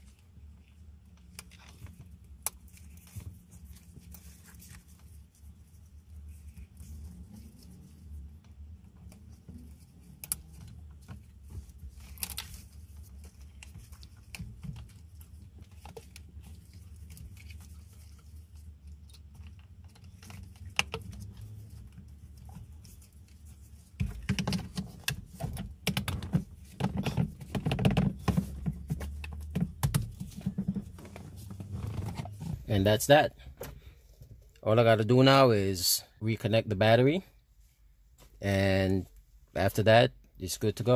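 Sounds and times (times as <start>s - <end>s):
knocks and clatter: 24.0s - 32.6s.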